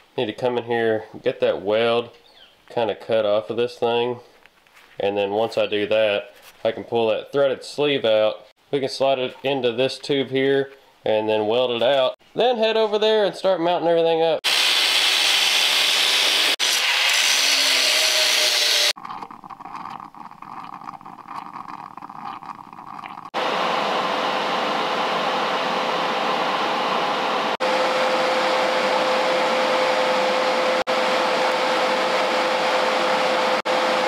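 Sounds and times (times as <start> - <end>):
angle grinder cutting metal: 14.5 - 19.0.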